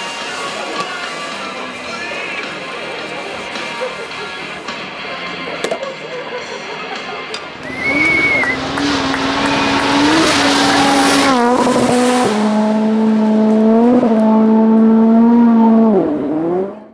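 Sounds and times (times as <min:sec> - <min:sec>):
racing car engine at high revs: 0:07.6 - 0:16.9.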